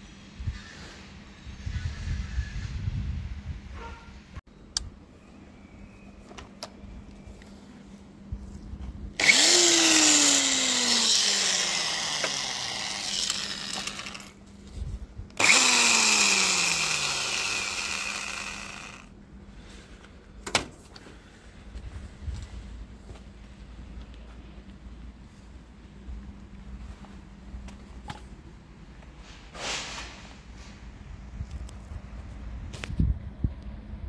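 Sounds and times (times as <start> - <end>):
electric drill motor whine: 9.2 - 14.4, 15.4 - 19.1.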